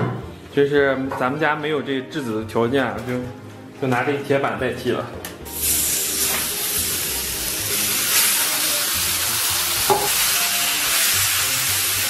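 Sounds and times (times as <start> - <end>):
meat sizzling on a griddle: 5.5 - 12.0.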